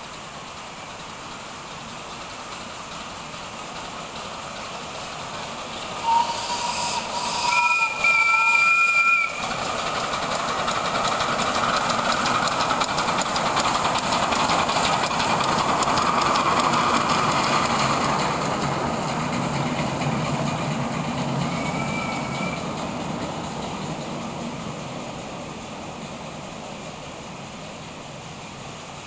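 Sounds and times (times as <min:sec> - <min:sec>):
steam hissing: 0:00.0 - 0:29.0
steam locomotive chuffing: 0:00.0 - 0:29.0
single-note steam whistle: 0:06.0 - 0:09.4, 0:21.5 - 0:22.7
two-note steam whistle: 0:06.0 - 0:09.5, 0:21.4 - 0:22.7.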